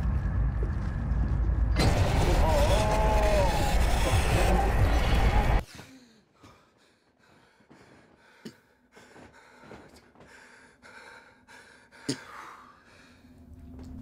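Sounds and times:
loud harsh noise: 1.8 - 5.6.

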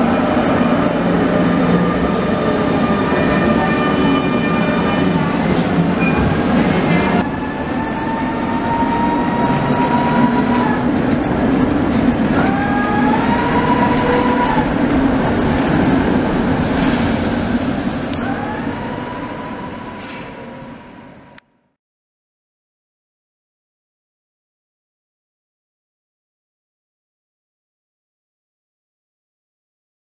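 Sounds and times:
tram wheels rumbling on rails: 0.0 - 21.4.

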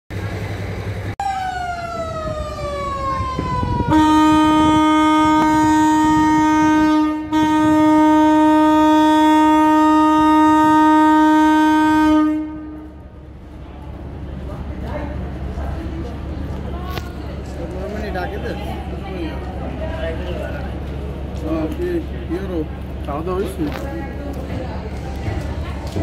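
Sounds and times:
boat horn blast: 3.8 - 13.1.

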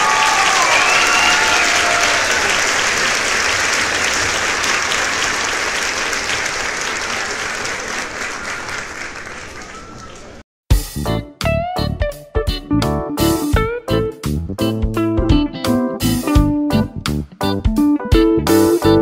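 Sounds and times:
people clapping: 0.0 - 10.4
voices calling out: 0.0 - 10.4.

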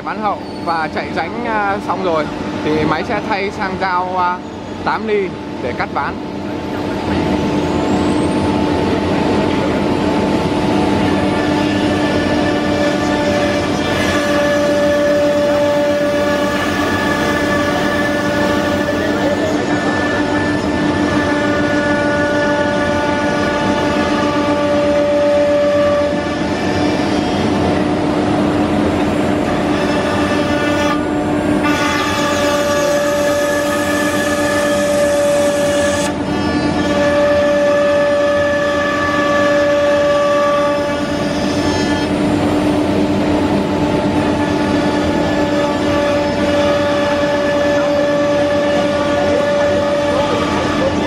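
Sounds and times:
router machine noise with whine tones: 5.8 - 27.8, 28.9 - 42.3, 43.6 - 51.0
router spindle whine: 7.1 - 27.5.

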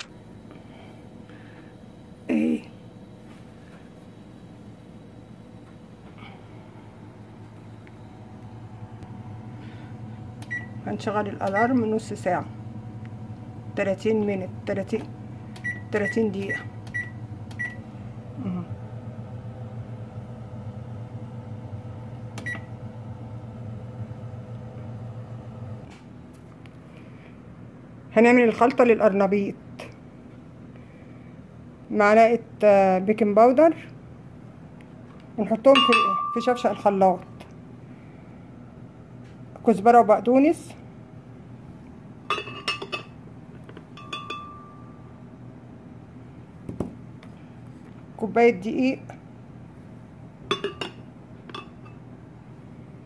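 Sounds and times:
steady low hum: 0.0 - 53.0
keypad beeps: 15.6 - 17.8
glass kitchenware clinking: 35.8 - 36.7, 42.3 - 43.2, 43.9 - 44.8, 50.5 - 52.0.

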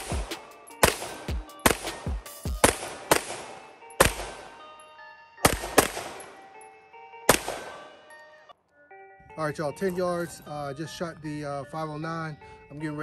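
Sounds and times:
pistol shots with echo: 0.0 - 4.8, 5.4 - 6.5, 7.3 - 8.1.

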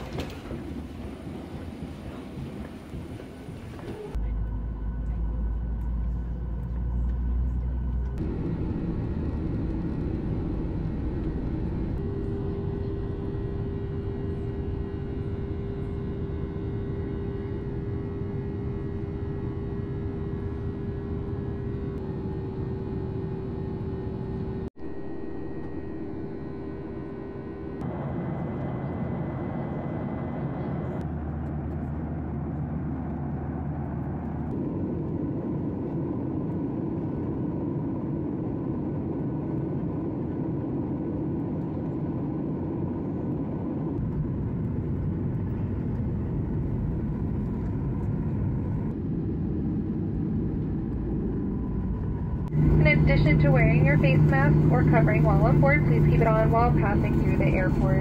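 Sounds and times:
jet engine and rushing air drone: 8.2 - 58.0.

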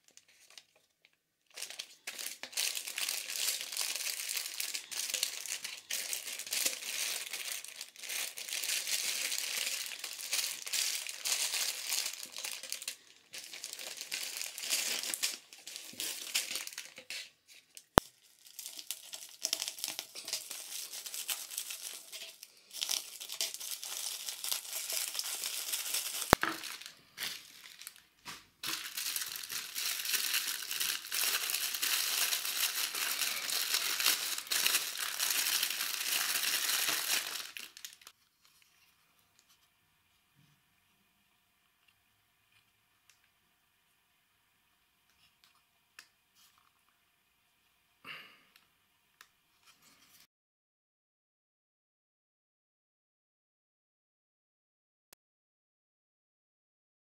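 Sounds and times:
plastic bags crinkling: 0.0 - 38.1.

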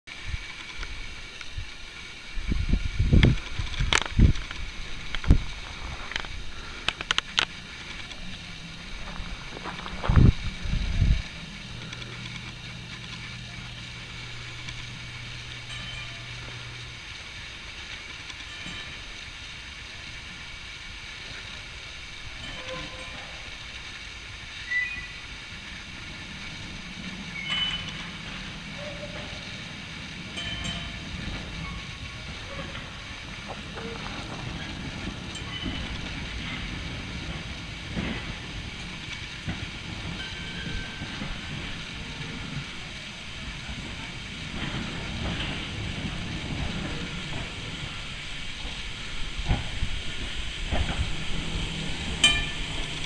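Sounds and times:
streetcar rumbling on track: 0.1 - 53.0
sharp clicks of wheels: 3.1 - 19.5.

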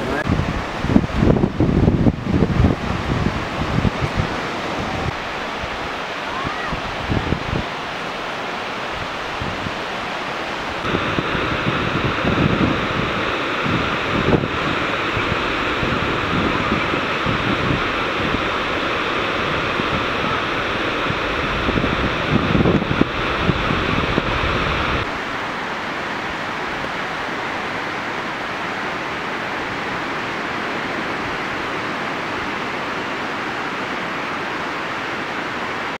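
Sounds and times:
wind buffeting microphone: 0.0 - 7.9, 8.8 - 10.0, 10.6 - 25.4
ocean surf breaking: 0.0 - 36.0.

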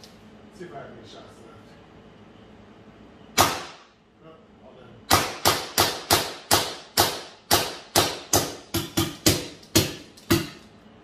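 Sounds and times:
air-powered gun firing sharp shots: 3.4 - 4.0.

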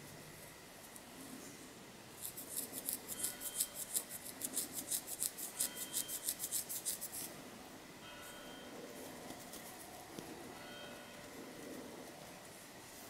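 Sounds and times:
fingernails scratching scalp: 2.2 - 7.4.

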